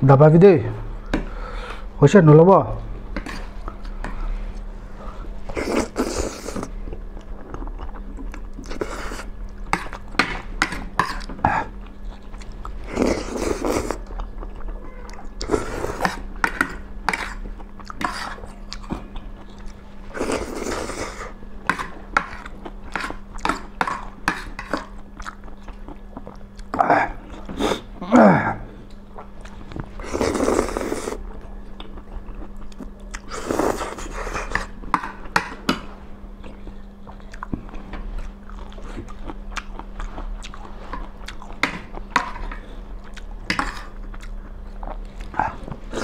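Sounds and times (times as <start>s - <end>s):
people slurping noodles: 5.5s - 6.7s, 12.8s - 14.0s, 20.1s - 21.4s, 30.0s - 31.2s.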